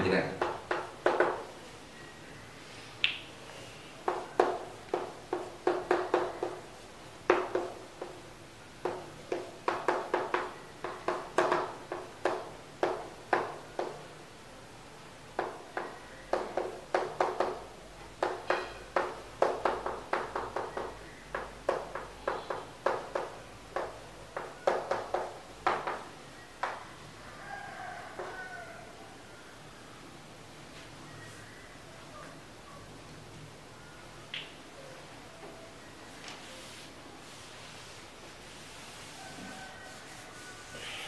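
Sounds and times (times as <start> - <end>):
chalk scraping on blackboard: 36.4 - 41.0.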